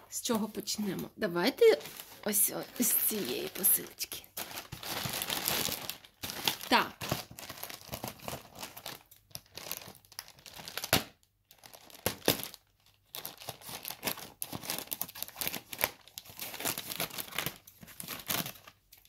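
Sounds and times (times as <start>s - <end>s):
plastic mailer bag crinkling: 0.3s - 19.0s.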